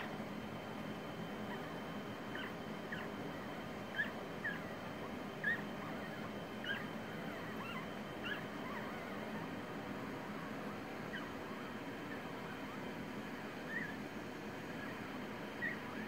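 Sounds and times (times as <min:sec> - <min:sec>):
puppies squeaking and whimpering: 0:02.3 - 0:12.8, 0:13.6 - 0:14.1, 0:14.8 - 0:16.0.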